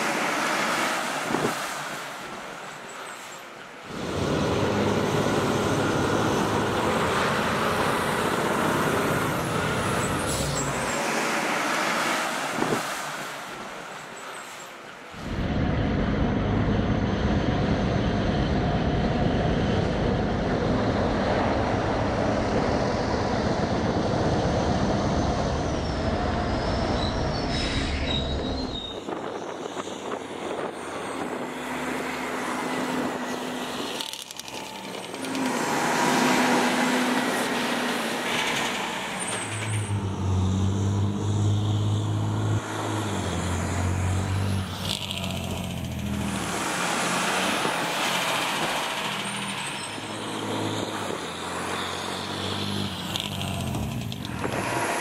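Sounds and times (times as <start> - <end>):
fire truck diesel engine passing: 3.8 - 14.0.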